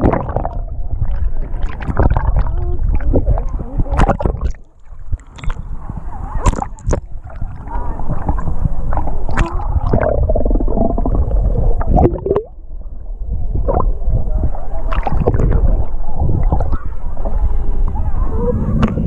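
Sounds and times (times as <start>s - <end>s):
clicks and knocks underwater: 0.0s - 5.8s, 6.4s - 12.5s, 13.5s - 13.9s, 14.9s - 16.8s
underwater rumble of moving water: 0.0s - 19.0s.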